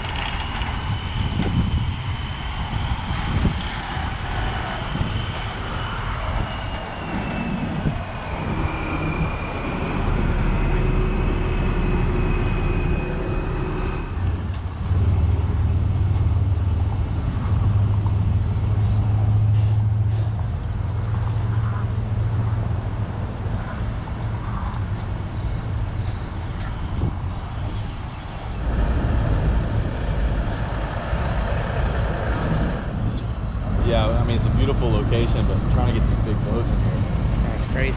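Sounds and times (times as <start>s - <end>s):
diesel truck engine rumbling: 4.2s - 37.9s.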